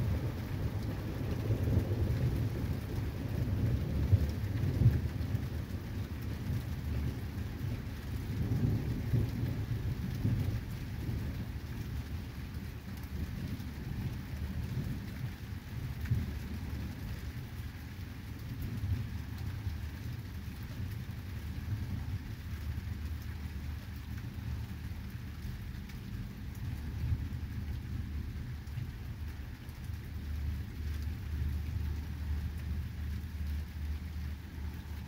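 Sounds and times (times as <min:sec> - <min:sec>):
thunder rumbling: 0:00.0 - 0:12.0
rain pattering: 0:00.0 - 0:35.0.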